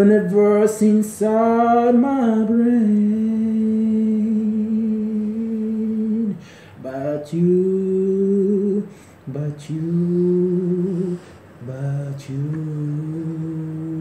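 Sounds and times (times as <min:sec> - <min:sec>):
breath: 0:06.4 - 0:06.8, 0:08.9 - 0:09.2, 0:11.2 - 0:11.5.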